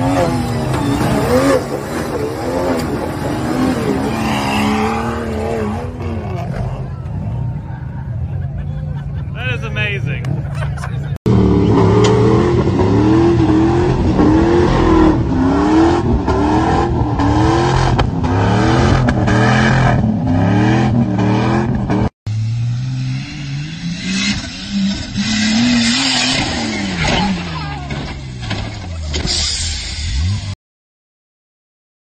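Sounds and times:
pickup engine revving in sand: 0:00.0 - 0:06.7
off-road vehicle engine revving: 0:00.0 - 0:30.6.

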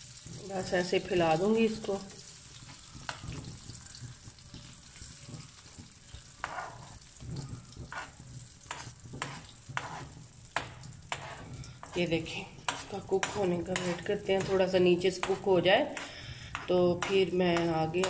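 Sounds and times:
eggs sizzling in frying pan: 0:00.0 - 0:18.0
spoon scraping pan: 0:04.2 - 0:18.0.

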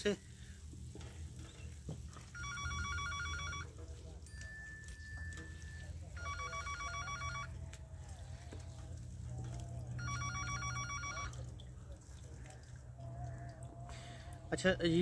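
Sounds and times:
phone ringing with trilling ringtone: 0:02.3 - 0:07.6, 0:10.0 - 0:11.5.

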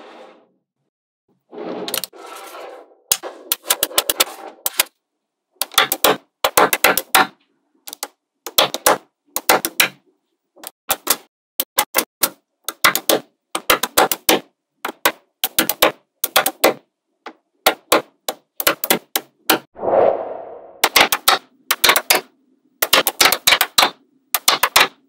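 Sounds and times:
magnetic balls clicking: 0:20.8 - 0:25.0.

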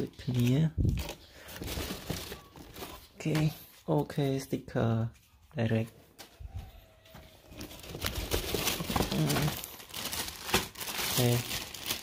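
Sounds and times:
packaging crinkling and tearing: 0:07.5 - 0:12.0.

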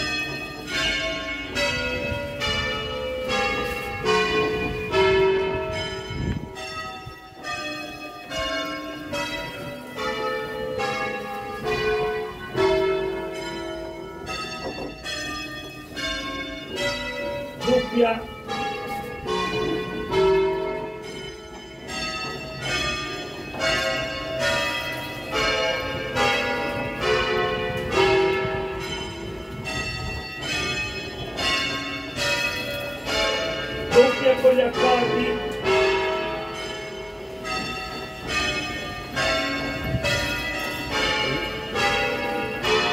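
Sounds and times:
church bells ringing: 0:00.0 - 0:42.9.

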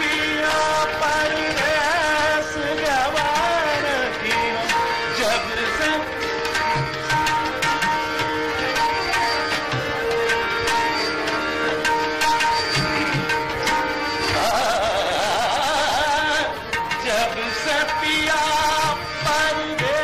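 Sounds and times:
man singing gliding melody: 0:00.0 - 0:08.0, 0:14.1 - 0:20.0
tabla strokes: 0:00.0 - 0:20.0
tanpura drone: 0:00.0 - 0:20.0.

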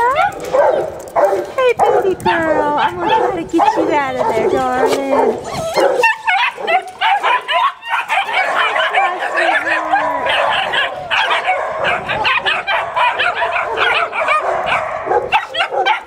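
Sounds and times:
dogs barking and yipping: 0:00.0 - 0:16.0
dog whining: 0:03.7 - 0:14.8.

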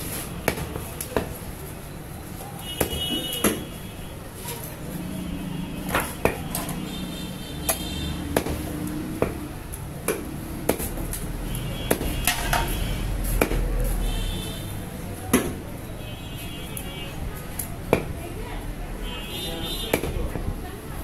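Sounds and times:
cleaver chopping on wooden block: 0:02.8 - 0:03.7, 0:07.7 - 0:11.1, 0:11.9 - 0:12.7, 0:13.4 - 0:13.6, 0:19.9 - 0:20.2.

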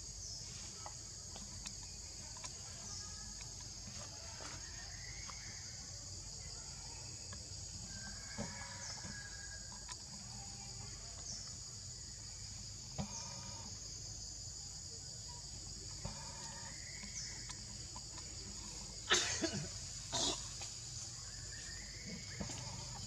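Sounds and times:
forest insects droning: 0:00.0 - 0:23.0.

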